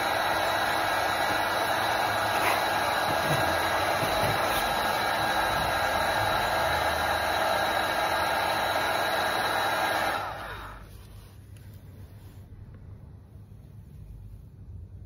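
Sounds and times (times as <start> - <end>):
hot-air blower running: 0.0 - 11.3.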